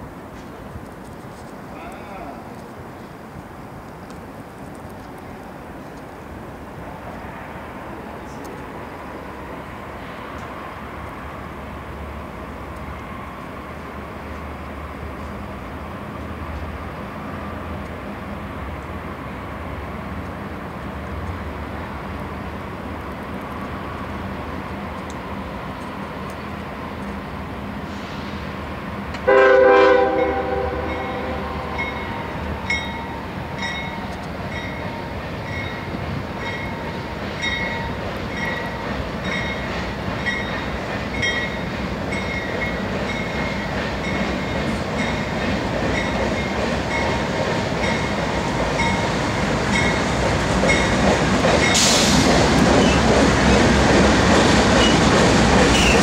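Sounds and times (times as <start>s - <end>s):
diesel engines and rolling train: 0.0s - 56.0s
locomotive horn blast: 29.2s - 32.5s
locomotive bell ringing: 30.2s - 47.2s, 47.8s - 49.1s, 49.7s - 50.1s.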